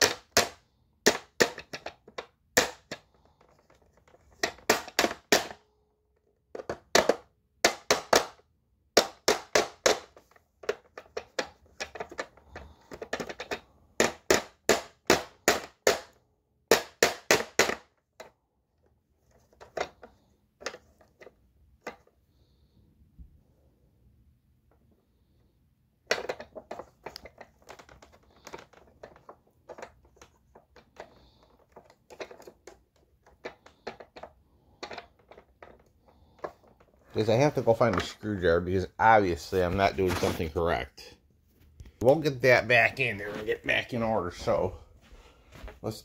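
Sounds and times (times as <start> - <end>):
hammer tapping plastic: 0.0 - 5.6, 6.5 - 8.4, 9.0 - 18.3, 26.1 - 37.1.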